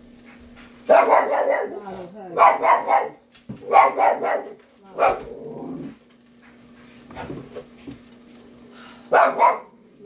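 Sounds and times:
dog barking: 0.9 - 5.4, 9.1 - 9.8.

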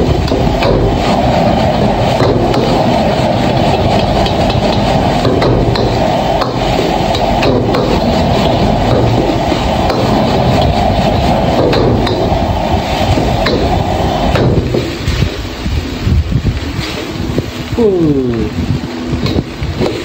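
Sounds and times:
gas wok burner roaring: 0.0 - 20.0
metal spatula scraping a wok: 0.4 - 11.1.

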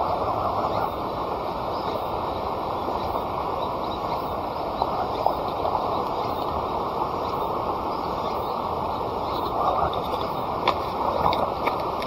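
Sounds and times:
campfire burning: 8.6 - 12.0.

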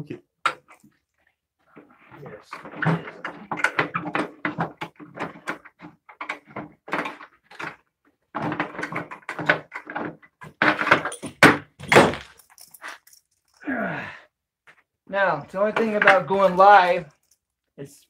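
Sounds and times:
wooden board knocks and scrapes: 2.5 - 12.4.

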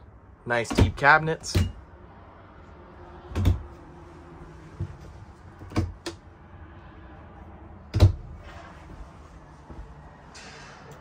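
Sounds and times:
cabinet doors knocking and clicking: 0.7 - 1.8, 3.3 - 3.6, 5.6 - 6.1, 7.9 - 8.2.

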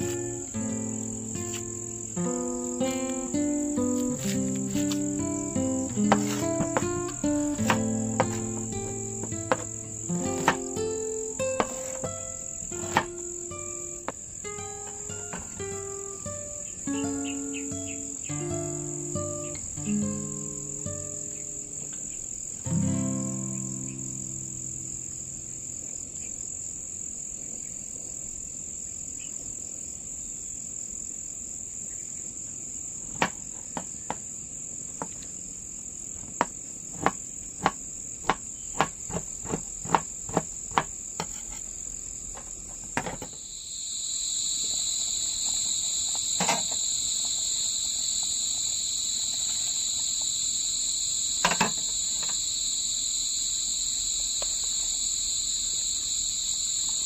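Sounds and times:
insects chirring: 0.0 - 57.0
lower insect drone: 0.0 - 57.0
sharp knocks: 6.0 - 10.8.

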